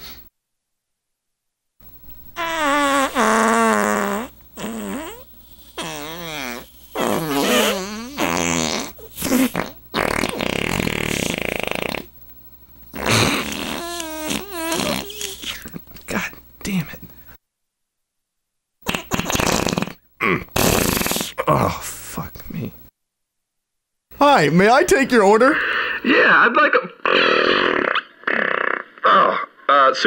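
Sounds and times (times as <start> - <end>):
fart sounds: 2.4 - 12.1, 12.9 - 15.8, 18.8 - 21.7, 27.1 - 29.5.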